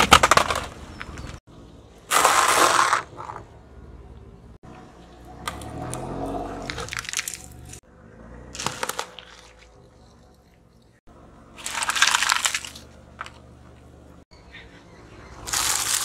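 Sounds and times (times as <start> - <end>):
wet crunch of fruit: 5.5 - 7.8
foil crunching under tyre: 6.6 - 7.8, 8.5 - 9.8, 11.6 - 13.4, 15.5 - 16.0
wrapped sweets crackling: 6.8 - 7.8, 8.6 - 9.8, 11.6 - 12.9, 15.5 - 16.0.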